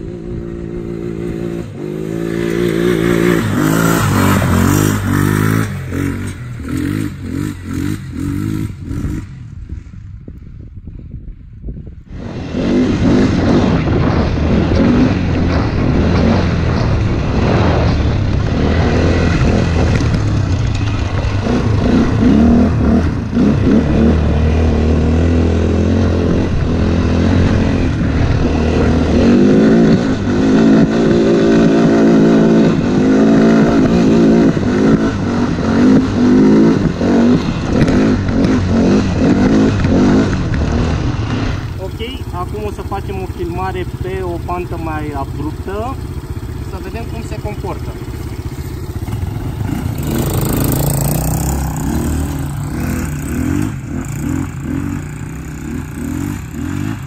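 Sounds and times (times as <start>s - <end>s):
quad engine revving: 0.0s - 9.4s, 12.1s - 57.0s.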